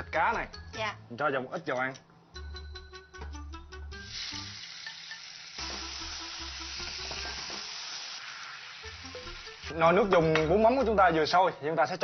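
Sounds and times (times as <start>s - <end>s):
fish sizzling in hot oil: 4.0s - 10.4s.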